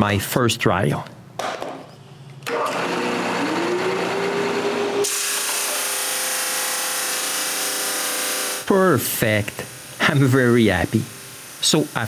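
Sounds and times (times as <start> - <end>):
drum sander motor running: 2.5 - 8.7.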